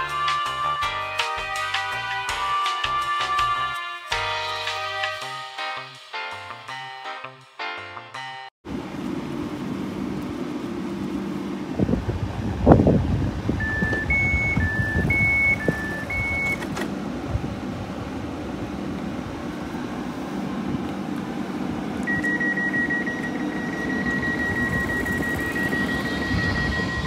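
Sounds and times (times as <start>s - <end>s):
train hum: 8.7s - 27.0s
steady door warning beep: 13.6s - 16.6s, 22.1s - 27.0s
two-tone door chime: 22.1s - 27.0s.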